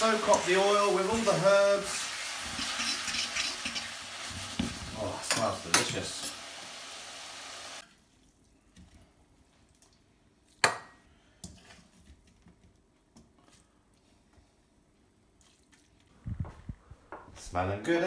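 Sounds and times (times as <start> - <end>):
wok sizzling: 0.0 - 7.8.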